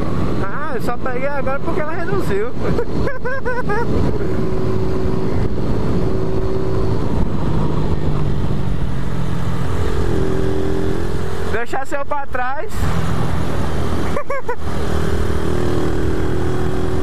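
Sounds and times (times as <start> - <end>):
wind rushing over microphone: 0.0 - 11.6.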